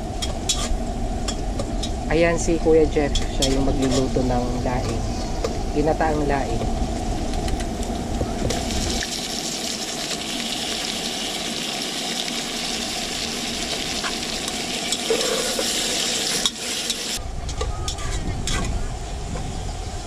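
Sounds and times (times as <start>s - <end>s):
meat sizzling in hot oil: 6.9s - 17.2s.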